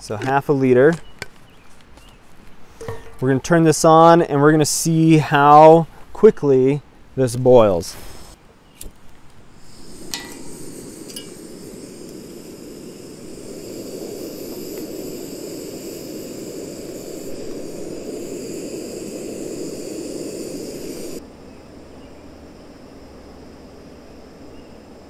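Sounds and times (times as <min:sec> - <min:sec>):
gas stove burner hissing: 0:09.5 - 0:21.2.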